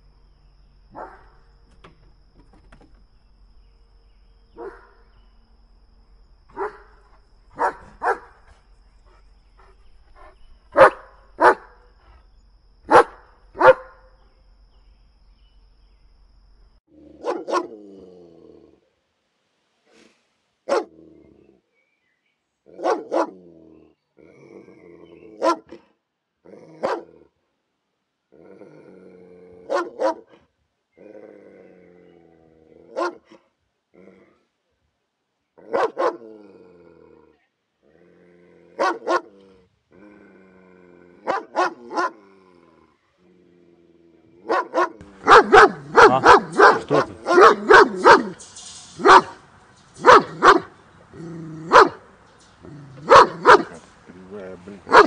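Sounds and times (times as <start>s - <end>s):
dog barking: 1.0s - 1.2s, 4.6s - 4.9s, 6.5s - 6.9s, 7.6s - 8.4s, 10.7s - 11.8s, 12.9s - 14.0s, 17.2s - 17.8s, 20.7s - 20.9s, 22.8s - 23.4s, 25.4s - 25.8s, 26.8s - 27.1s, 29.7s - 30.4s, 32.9s - 33.4s, 35.6s - 36.2s, 38.8s - 39.3s, 41.3s - 42.2s, 44.4s - 48.4s, 49.0s - 49.4s, 50.0s - 50.7s, 51.7s - 52.0s, 53.0s - 53.8s
low drawn-out dog sounds: 4.5s - 5.1s, 6.5s - 14.1s, 28.4s - 34.6s, 35.6s - 55.0s.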